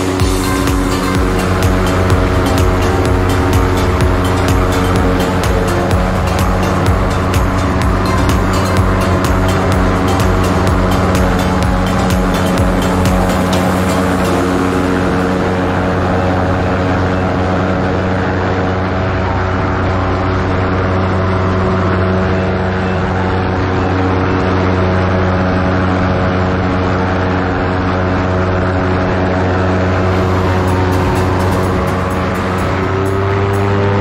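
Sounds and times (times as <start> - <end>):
aircraft engine and propeller droning: 0.0 - 34.0
wind rushing over microphone: 0.0 - 34.0.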